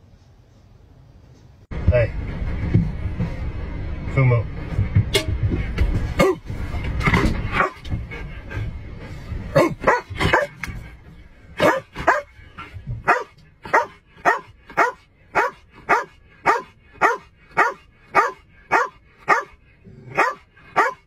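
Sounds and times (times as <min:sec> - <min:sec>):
dog barking: 0:07.6 - 0:07.8, 0:09.6 - 0:10.6, 0:11.6 - 0:12.3, 0:13.0 - 0:21.0.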